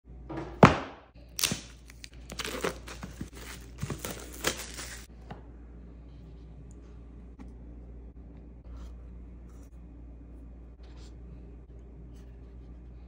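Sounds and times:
plastic shrink wrap crinkling: 1.4 - 5.1.

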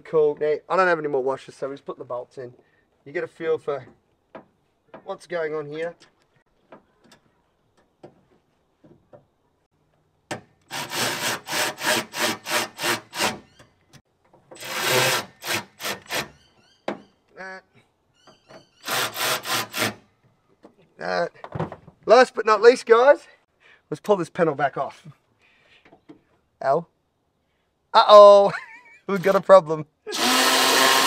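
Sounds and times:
hand tool scraping strokes: 10.7 - 13.6, 14.6 - 16.4, 18.8 - 20.1.

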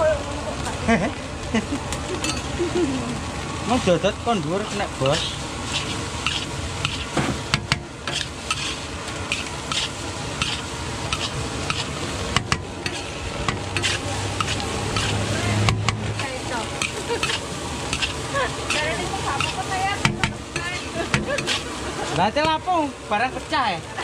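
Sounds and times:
rice sizzling in a wok: 0.0 - 24.0
spatula scraping and clinking pan: 5.0 - 21.8.

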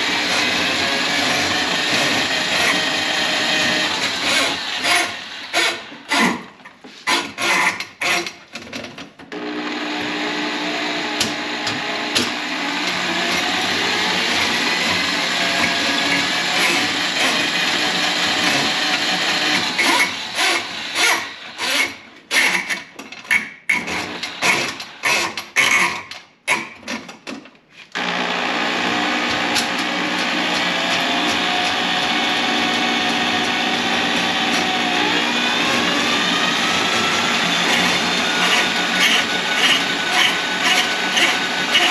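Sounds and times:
drain snake motor: 9.8 - 21.9, 28.0 - 41.9.

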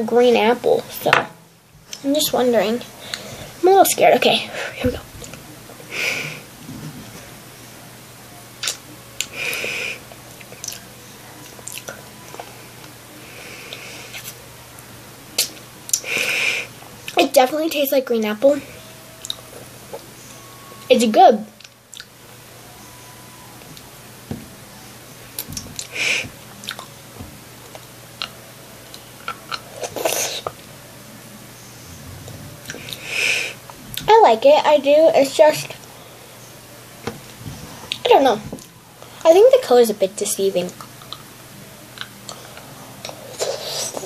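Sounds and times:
person sucking on a lollipop: 43.2 - 44.0.

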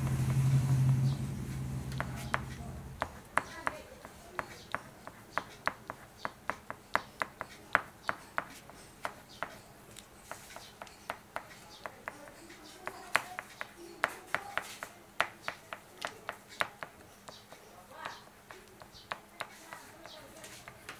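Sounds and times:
crayon strokes on paper: 0.0 - 7.8, 10.2 - 15.6, 18.5 - 20.9.

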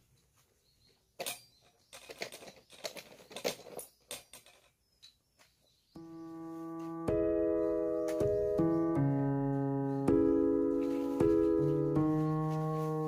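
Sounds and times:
piano music: 6.0 - 13.0.

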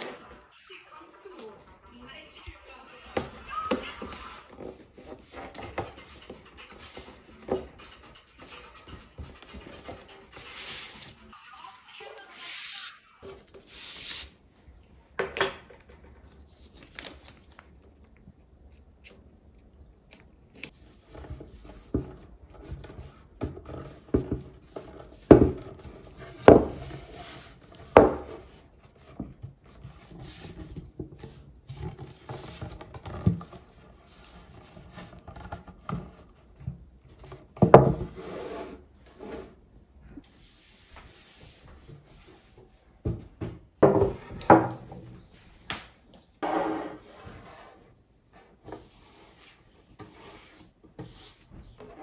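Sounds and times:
paper rustling and rubbing: 4.0 - 14.4.

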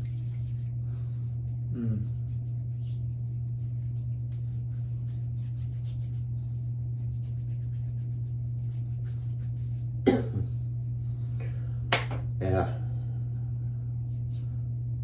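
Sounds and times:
hands rubbing skin: 0.0 - 10.0, 13.9 - 15.0
steady low hum: 0.0 - 15.0.

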